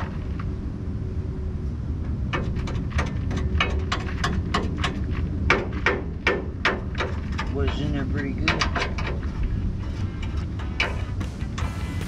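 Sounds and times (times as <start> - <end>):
steady low rumble: 0.0 - 12.0
metal-on-metal taps: 2.3 - 9.2.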